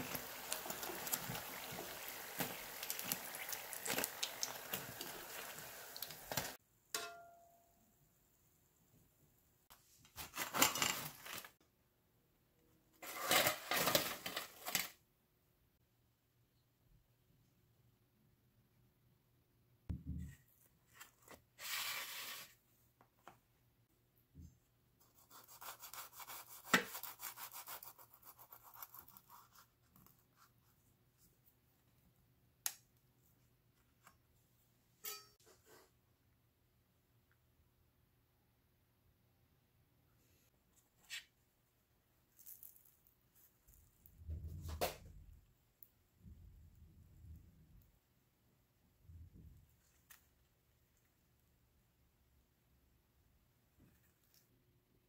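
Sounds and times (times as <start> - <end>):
clattering and scraping: 13.0 - 14.9.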